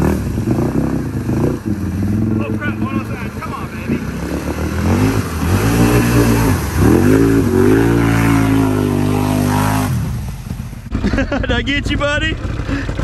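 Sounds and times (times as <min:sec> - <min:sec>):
atv engine revving: 0:00.0 - 0:13.0.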